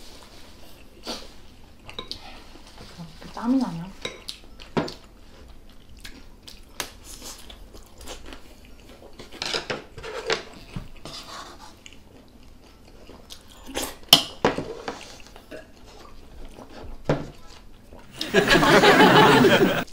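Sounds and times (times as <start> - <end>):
chewing and slurping: 4.2 - 14.1, 14.7 - 18.2.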